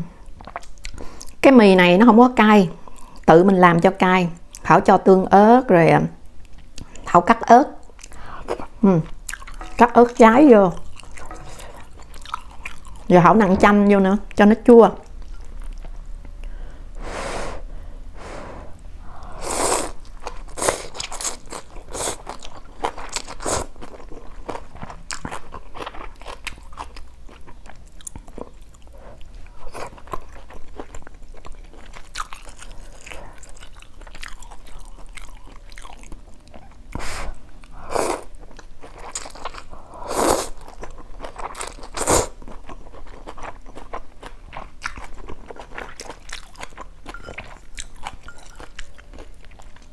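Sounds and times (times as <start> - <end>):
crunchy chewing: 7.9 - 9.8, 10.7 - 13.1, 19.8 - 37.1, 38.0 - 49.9.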